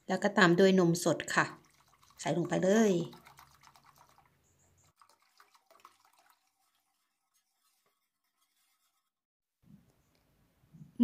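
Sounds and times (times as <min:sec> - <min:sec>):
milk pouring into saucepan: 0:01.2 - 0:08.5.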